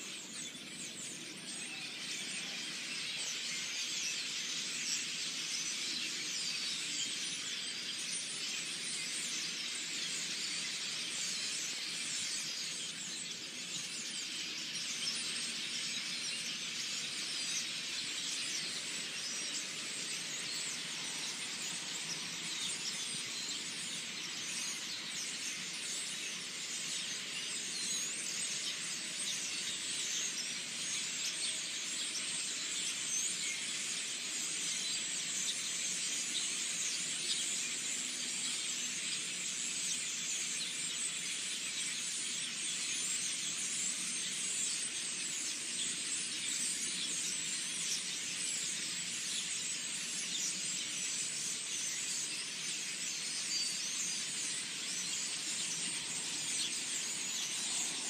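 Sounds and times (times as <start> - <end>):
flock of birds chirping: 0.0 - 58.0.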